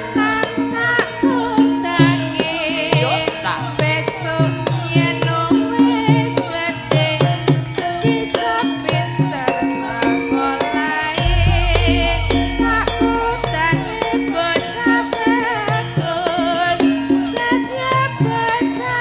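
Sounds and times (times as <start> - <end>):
woman singing into a microphone: 0.0 - 19.0
ringing bronze metallophones: 8.4 - 17.7
deep bass tone: 11.2 - 15.1
hand drum strokes: 11.2 - 16.0.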